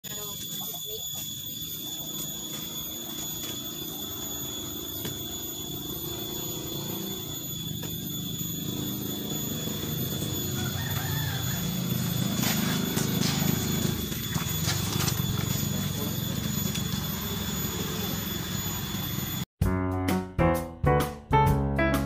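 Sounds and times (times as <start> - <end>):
rooster crowing: 3.7 - 14.1.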